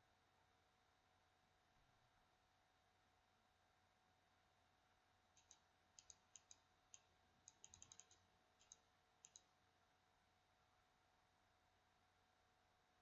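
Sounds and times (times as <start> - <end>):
computer mouse clicks: 5.4 - 9.5.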